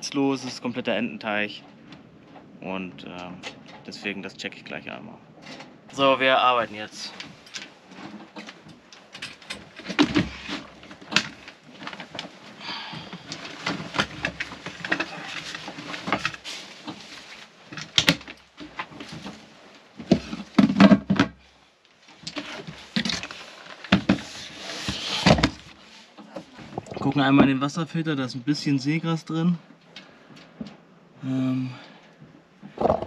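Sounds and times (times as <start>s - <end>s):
wooden knocks and scrapes: 7.1s - 21.4s, 22.1s - 27.6s, 32.6s - 33.0s.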